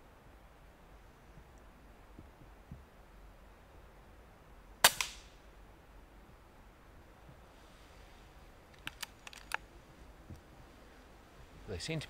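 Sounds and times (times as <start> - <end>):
air rifle shot crack: 4.8 - 5.4.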